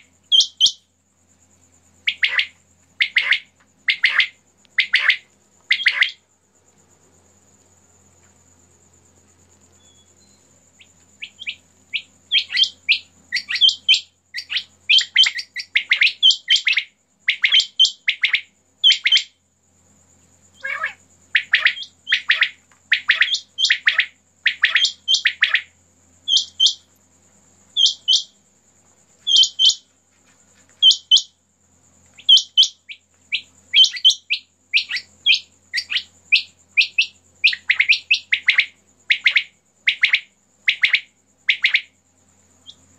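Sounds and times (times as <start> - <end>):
insect trill: 0.0 - 42.9
quail calling: 2.0 - 6.2, 11.2 - 19.3, 20.6 - 25.7, 29.3 - 29.8, 30.8 - 31.3, 32.2 - 41.9.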